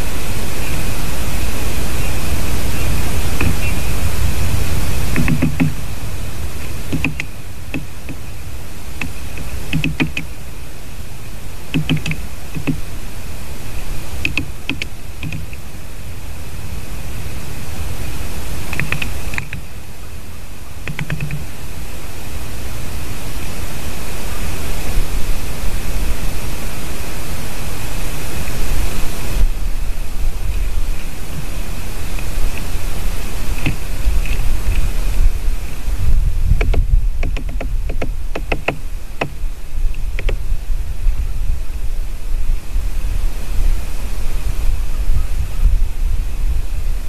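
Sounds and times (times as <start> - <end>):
faint steady high tone: 0.0 - 34.6
wind noise: 0.0 - 47.0
woodpecker tapping on wood: 3.3 - 3.9, 5.1 - 5.9, 6.6 - 8.3, 9.0 - 10.4, 11.7 - 12.9, 14.2 - 15.6, 18.7 - 19.7, 20.8 - 21.5, 33.5 - 34.8, 36.5 - 40.4.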